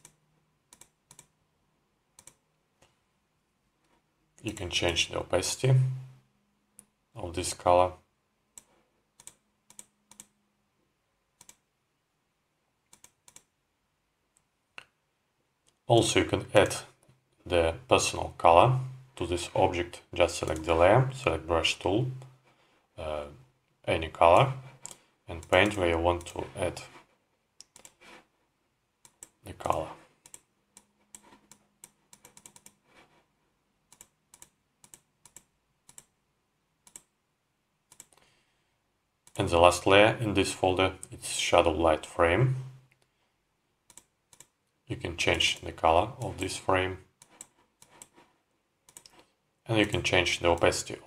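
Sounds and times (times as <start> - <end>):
faint mouse clicks: 0.0 - 1.4, 2.2 - 3.0, 8.6 - 10.4, 11.4 - 11.6, 12.9 - 13.5, 27.6 - 28.1, 29.0 - 33.1, 33.9 - 36.1, 36.8 - 37.1, 37.9 - 38.4, 43.9 - 44.6, 48.9 - 50.7.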